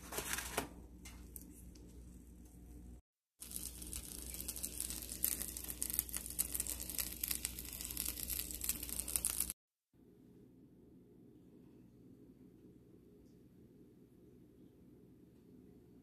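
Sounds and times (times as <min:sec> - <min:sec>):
omelet sizzling in a frying pan: 0:03.4 - 0:09.6.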